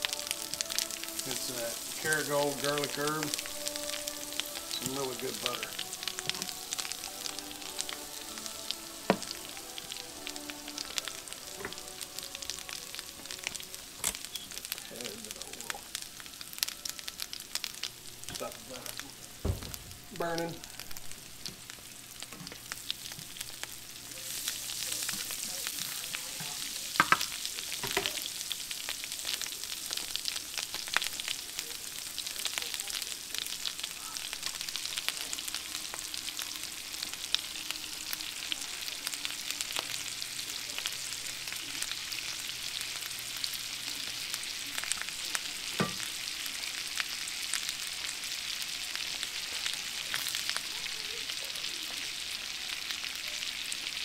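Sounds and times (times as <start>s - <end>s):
fish sizzling in a skillet: 0.0s - 54.0s
utensil knocking on pan: 27.0s - 28.1s.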